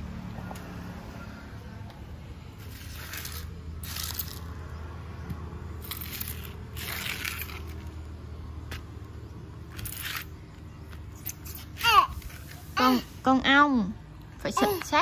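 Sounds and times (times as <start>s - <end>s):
rustling and scraping handling noises: 2.6s - 4.5s, 9.7s - 13.3s.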